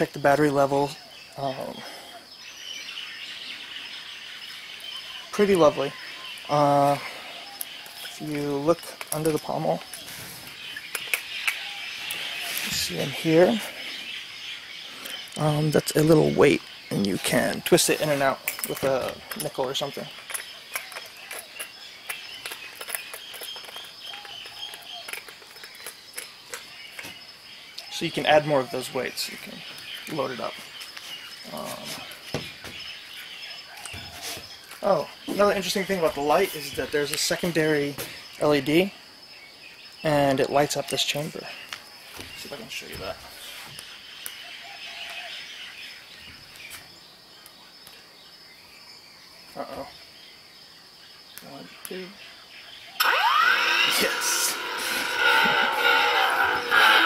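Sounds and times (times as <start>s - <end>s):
insects chirring: 0.0s - 57.0s
small metal clicks and ticks: 18.4s - 27.1s.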